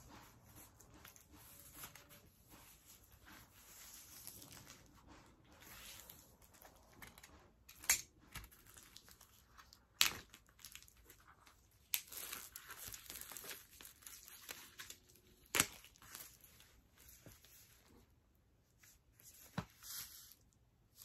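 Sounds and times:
plastic wrap crinkling and tearing: 5.6s - 17.7s
sharp plastic crackles: 5.7s - 17.3s.

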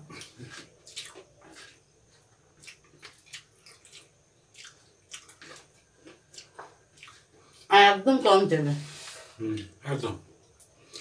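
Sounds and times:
wet smacks of eating by hand: 0.1s - 7.7s.

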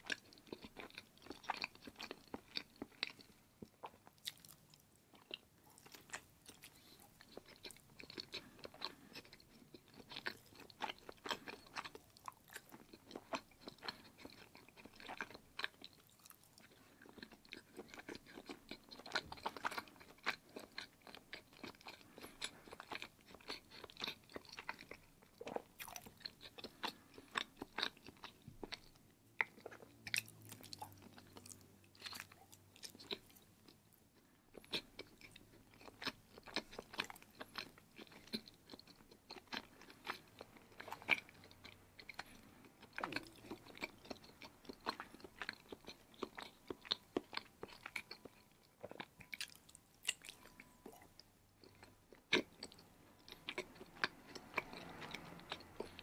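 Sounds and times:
chewing cheese: 0.0s - 56.0s.

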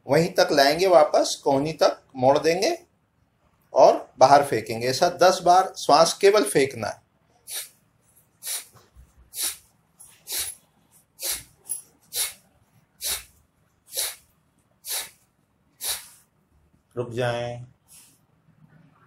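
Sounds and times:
forceful breath exhalations: 14.8s - 15.2s, 15.8s - 16.3s.

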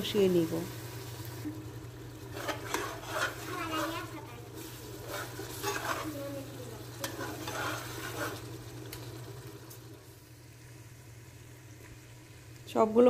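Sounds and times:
soft sizzle: 0.0s - 13.0s
spatula scraping a metal pot: 2.3s - 4.1s, 5.0s - 6.2s, 7.0s - 8.5s.

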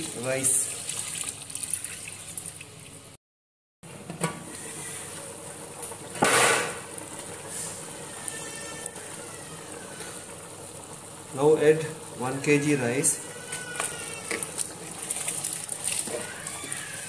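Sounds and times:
water pouring into a pot: 0.0s - 3.0s, 7.0s - 17.0s
pot bubbling at a hard boil: 4.4s - 17.0s.

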